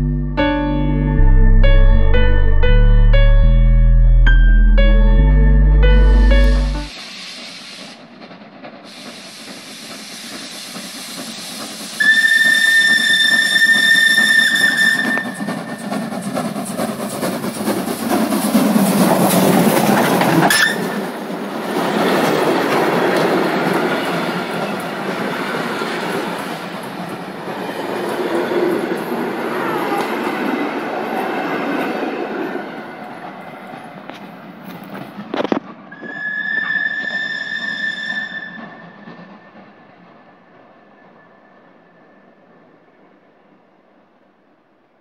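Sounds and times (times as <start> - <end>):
steam locomotive passing: 5.8 - 44.9
coaches rolling on rails: 6.2 - 43.3
steam whistle: 11.9 - 16.0, 35.9 - 39.0.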